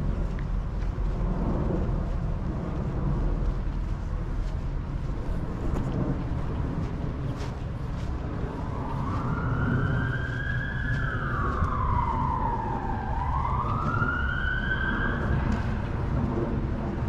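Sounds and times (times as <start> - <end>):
low rumble: 0.0 - 17.0
emergency siren wailing: 8.1 - 17.0.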